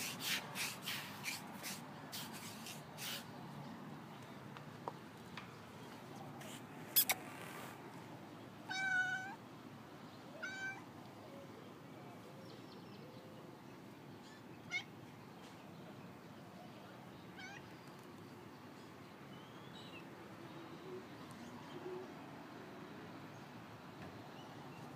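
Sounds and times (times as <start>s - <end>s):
cat chirping: 6.4s - 7.7s, 17.4s - 17.7s
cat meowing: 8.7s - 9.4s, 10.4s - 10.8s, 17.4s - 17.7s.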